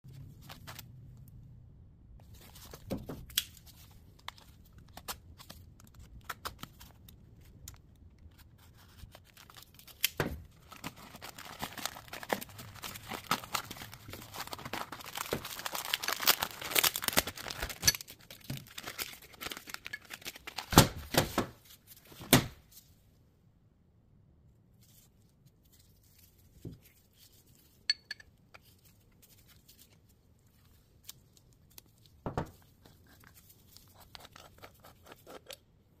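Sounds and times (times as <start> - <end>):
paper wrapping tearing and crinkling: 8.6 - 20.9.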